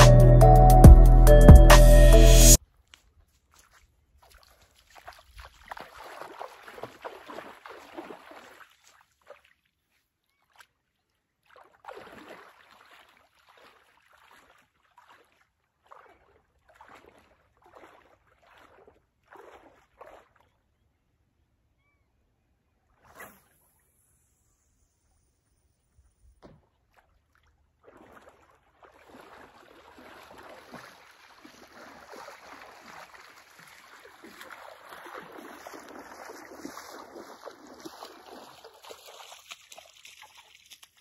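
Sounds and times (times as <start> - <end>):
water splashing around legs: 3.3 - 20.6, 26.4 - 41.0.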